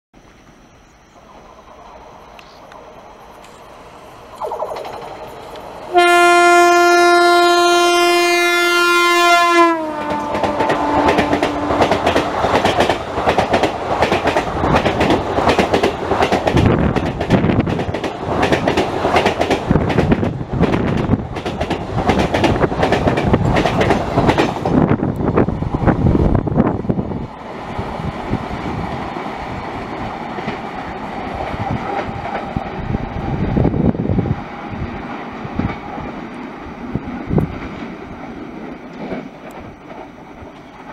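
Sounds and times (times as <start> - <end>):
train horn: 5.9 - 12.2
train wheels clattering over rails: 10.0 - 25.5, 35.0 - 40.9.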